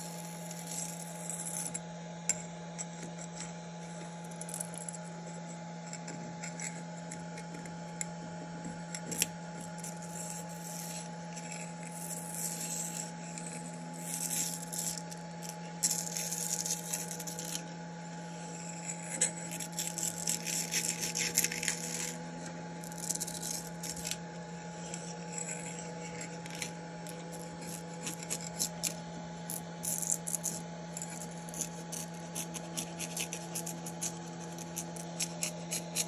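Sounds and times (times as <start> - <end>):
scraper scratching plastic sheet: 0.0 - 1.8, 8.4 - 17.7, 18.4 - 36.0
steady hum: 0.0 - 36.0.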